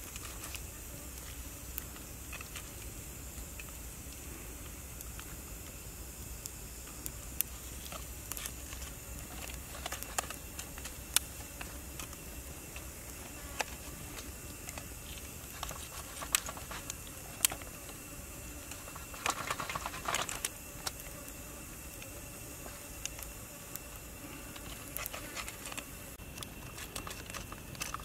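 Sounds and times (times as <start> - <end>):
steady background hiss: 0.0 - 28.0.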